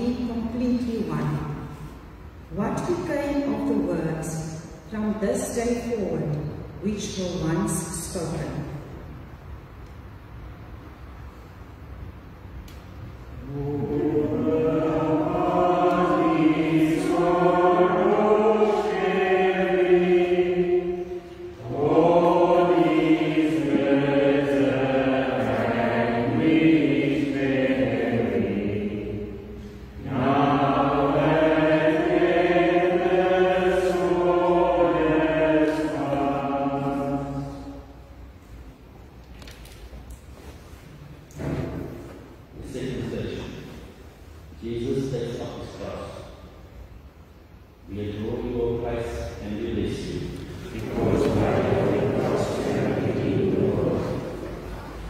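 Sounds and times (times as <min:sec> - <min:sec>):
voices singing a slow hymn: 0:13.1 - 0:39.4, 0:40.4 - 0:55.0.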